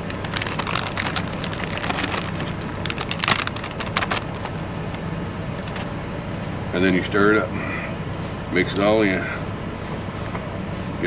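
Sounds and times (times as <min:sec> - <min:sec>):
cheese crackling in a pot: 0:00.0 - 0:04.6
steady low hum: 0:00.0 - 0:11.0.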